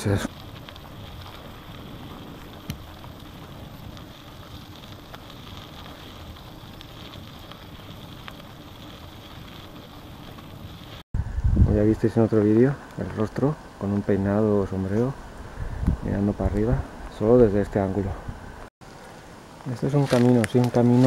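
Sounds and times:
bicycle tyres rolling on dirt: 0:00.0 - 0:18.2, 0:18.9 - 0:21.0
bicycle rattling: 0:00.3 - 0:11.0.

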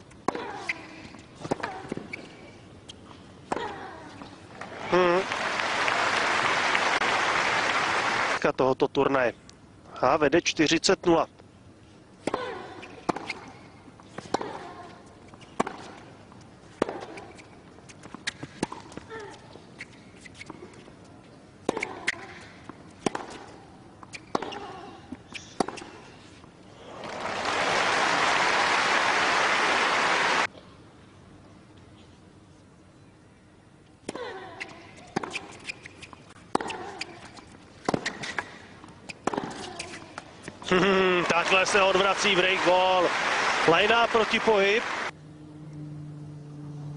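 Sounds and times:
racket hitting tennis ball: 0:15.4 - 0:16.1, 0:16.7 - 0:19.0, 0:21.6 - 0:24.7, 0:25.6 - 0:26.0, 0:35.1 - 0:40.6
tennis ball hit by rackets: 0:15.6 - 0:16.0, 0:21.6 - 0:23.5, 0:37.8 - 0:40.0.

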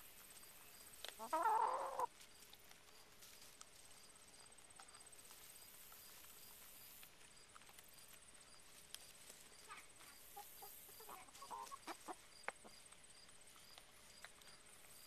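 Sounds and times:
hens clucking: 0:00.6 - 0:02.2, 0:09.6 - 0:13.0.

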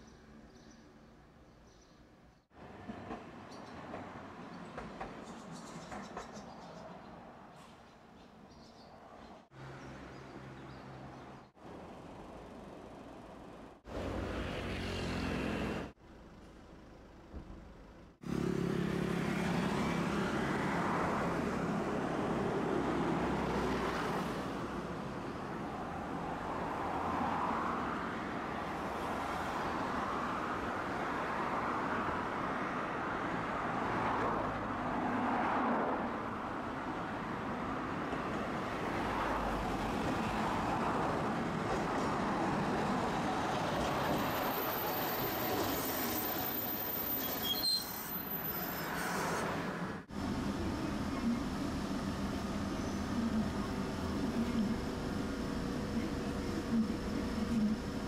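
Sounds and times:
streetcar rumbling on rails: 0:02.6 - 0:07.8, 0:19.3 - 0:58.0.

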